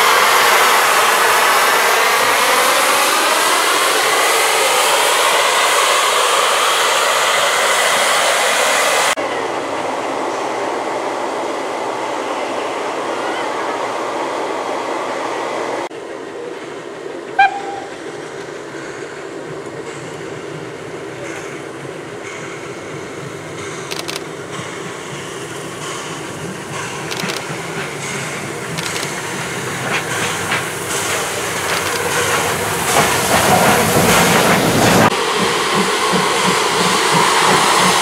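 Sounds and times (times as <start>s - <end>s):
loud steam hiss: 0.0s - 9.2s, 17.4s - 38.0s
train sound: 0.0s - 38.0s
steam whistle toot: 17.4s - 18.0s.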